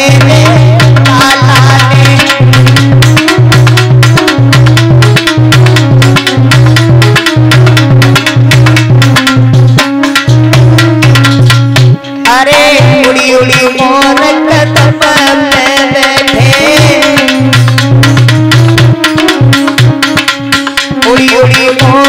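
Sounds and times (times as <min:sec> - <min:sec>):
fast dholak drumming: 0:00.0 - 0:22.0
held low notes: 0:00.2 - 0:12.2.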